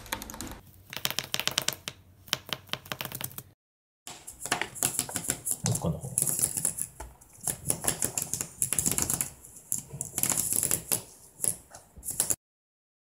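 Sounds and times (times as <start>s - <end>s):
toy clicking and rattling: 4.2s - 12.4s.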